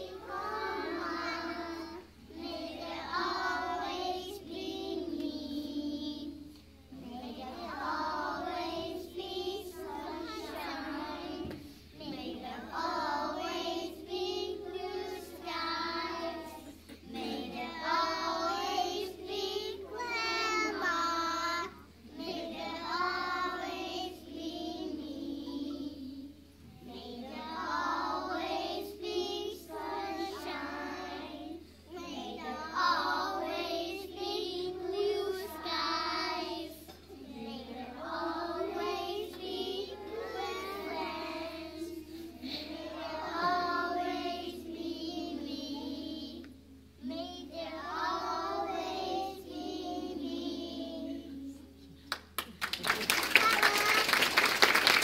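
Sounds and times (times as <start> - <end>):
children singing in unison: 0.0 - 46.5, 47.1 - 51.6.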